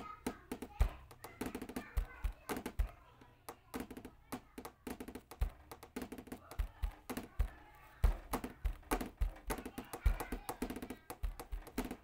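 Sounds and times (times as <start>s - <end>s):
background music with drum beat: 3.8s - 12.0s.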